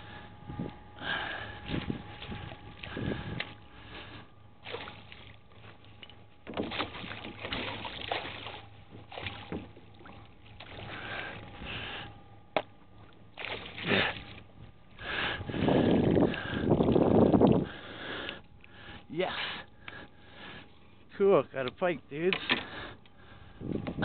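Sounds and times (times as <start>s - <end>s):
fish splashing in water: 4.6s - 5.7s, 6.6s - 11.3s, 13.4s - 14.4s.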